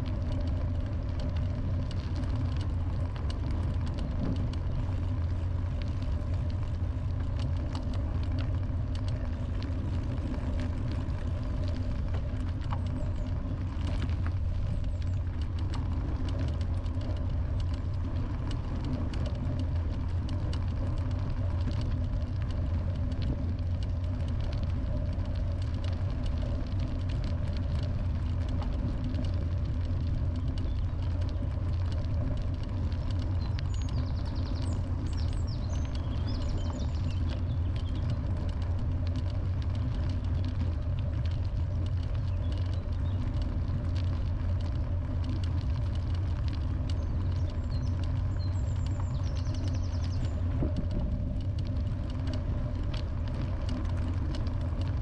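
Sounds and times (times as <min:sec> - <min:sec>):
faint ticks: 0:00.0 - 0:55.0
vehicle rumbling in motion: 0:00.0 - 0:55.0.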